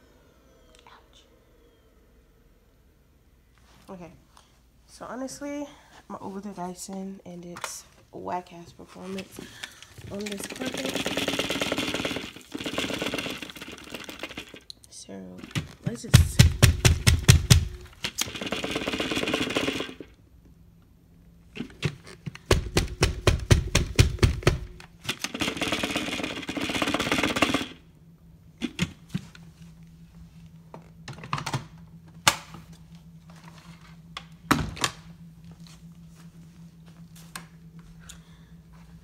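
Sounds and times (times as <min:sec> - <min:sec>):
vacuum motor and suction: 0:09.3 - 0:14.7, 0:17.4 - 0:20.1.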